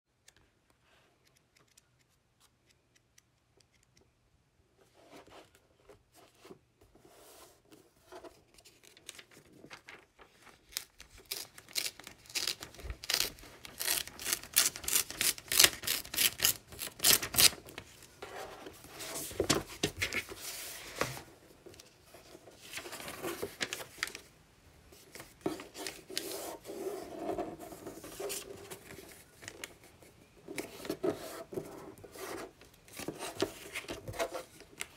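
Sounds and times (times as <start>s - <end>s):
magazine pages rustling: 8.2s - 29.9s, 30.5s - 34.9s
paper page tearing: 10.7s - 17.6s.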